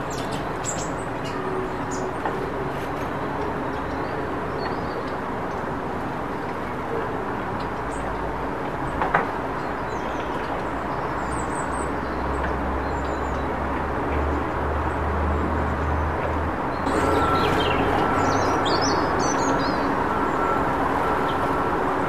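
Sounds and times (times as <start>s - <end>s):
small birds chirping: 0.0s - 2.2s, 16.7s - 20.6s.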